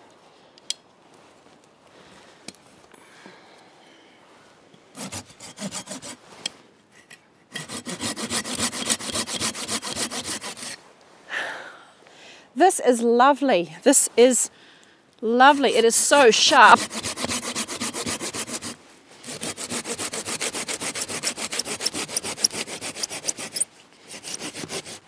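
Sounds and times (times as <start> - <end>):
hand saw cutting wood: 5.0 - 6.2, 7.5 - 10.8, 15.5 - 25.0.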